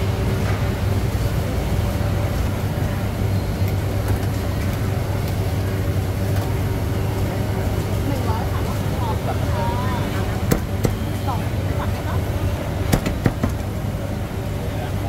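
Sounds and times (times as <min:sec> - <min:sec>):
busy market noise: 0:00.0 - 0:15.0.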